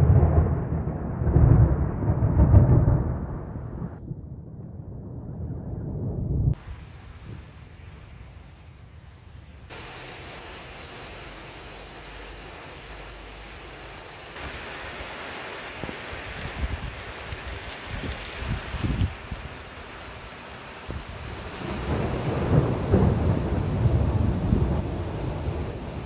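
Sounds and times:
thunder rumbling: 0.0 - 14.6, 20.8 - 26.0
heavy rain hissing: 6.6 - 26.0.

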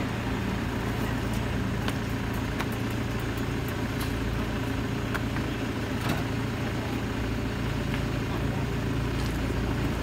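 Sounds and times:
low engine hum: 0.0 - 10.0.

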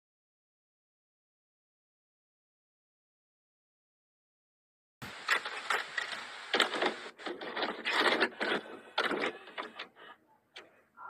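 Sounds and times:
stuttering static glitch noise: 5.0 - 8.0.

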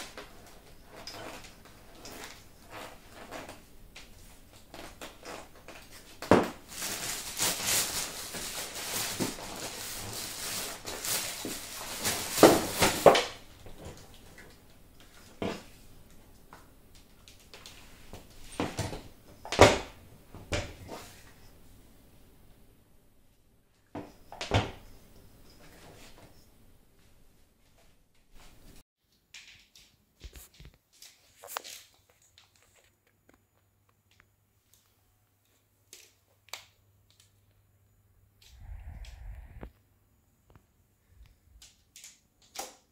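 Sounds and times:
packaging rustling: 4.8 - 13.4.

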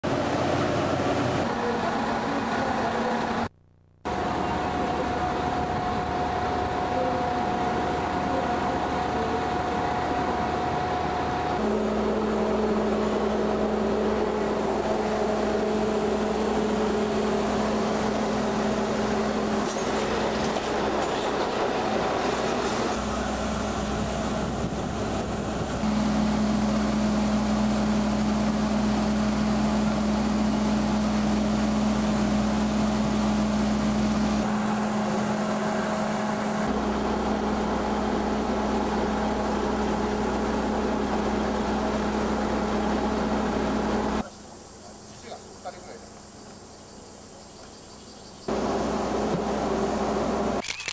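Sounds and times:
diesel railcar engine drone: 0.0 - 50.9.

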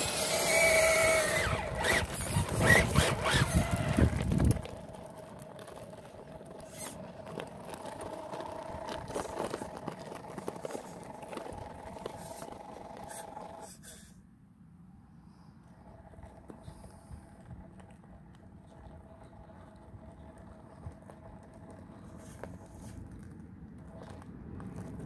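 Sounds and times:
clicks of tyres and stones: 0.0 - 14.1, 15.6 - 25.0
rc car motor whining: 0.0 - 14.2.

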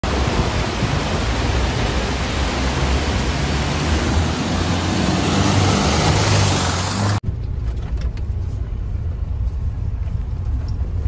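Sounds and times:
river rushing over rocks: 0.0 - 7.2
vehicle engine rumble: 0.0 - 11.0.

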